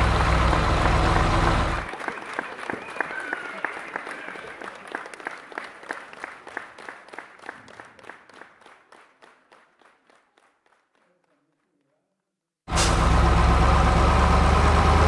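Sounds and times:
applause: 0:00.3 - 0:12.2.

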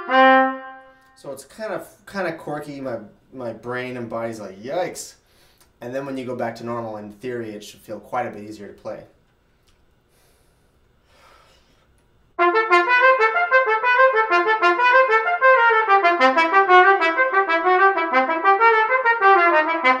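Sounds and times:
solo trumpet fast run: 0:00.0 - 0:00.9, 0:12.4 - 0:20.0.

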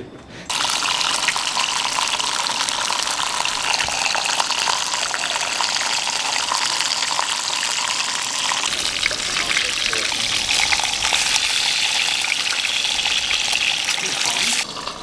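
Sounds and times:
oil sizzling and crackling: 0:00.5 - 0:15.0.

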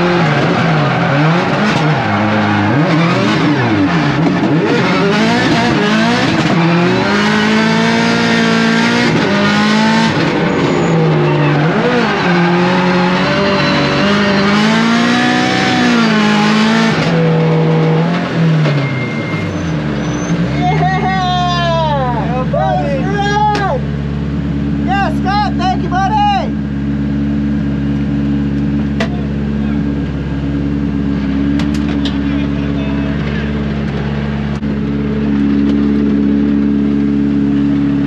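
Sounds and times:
race car engine revving: 0:00.0 - 0:38.0
tyres squealing: 0:00.1 - 0:04.0.

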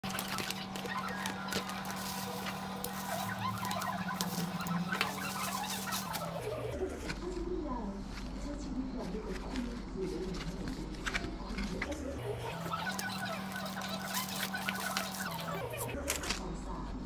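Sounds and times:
chirping: 0:00.0 - 0:06.8, 0:12.2 - 0:16.0
paper and bubble wrap crinkling: 0:00.0 - 0:16.5.

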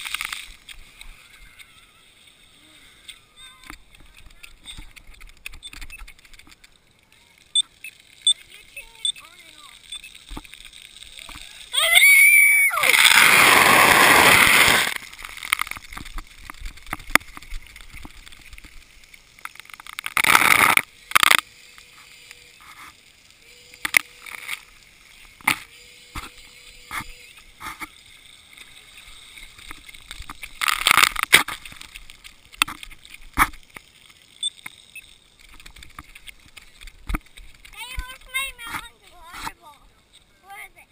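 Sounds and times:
water cannons spraying: 0:07.0 - 0:19.4.

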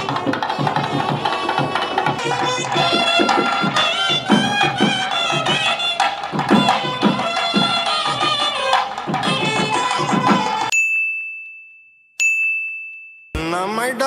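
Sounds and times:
hand drum beat: 0:00.0 - 0:10.7.

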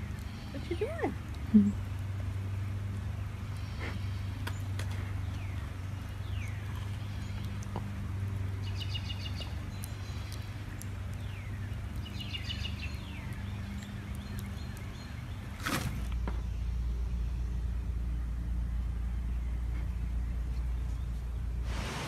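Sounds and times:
wood fire crackling: 0:00.0 - 0:16.2, 0:21.4 - 0:22.0
birds calling: 0:00.0 - 0:22.0
steady low hum: 0:00.0 - 0:22.0.

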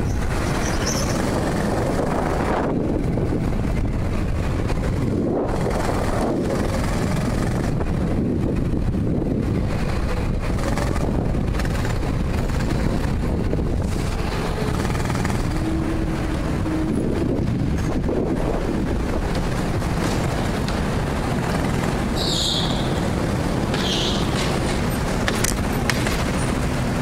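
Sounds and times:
go-kart rumble: 0:00.0 - 0:27.0
wind buffeting microphone: 0:00.0 - 0:27.0.

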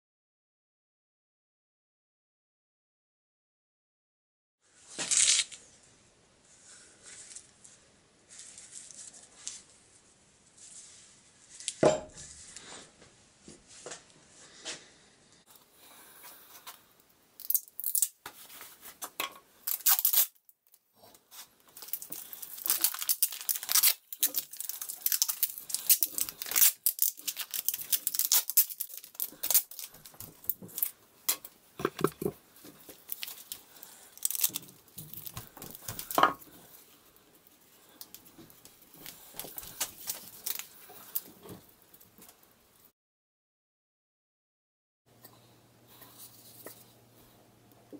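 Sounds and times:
tape crinkling: 0:04.9 - 0:05.6, 0:17.4 - 0:18.7, 0:19.6 - 0:42.5
tape ripping off roll: 0:04.9 - 0:05.6, 0:19.7 - 0:20.4, 0:21.8 - 0:30.9
wooden block knocks: 0:31.8 - 0:32.4.

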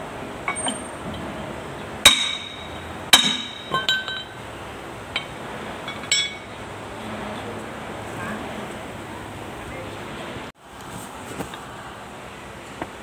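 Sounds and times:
steel parts clinking: 0:00.4 - 0:04.4, 0:05.1 - 0:06.6.

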